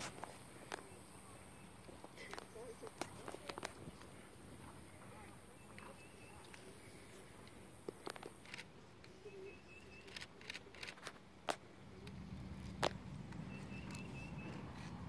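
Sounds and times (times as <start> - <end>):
bird chirping: 9.1 - 10.9, 13.4 - 15.0
sharp clicks: 10.0 - 12.2.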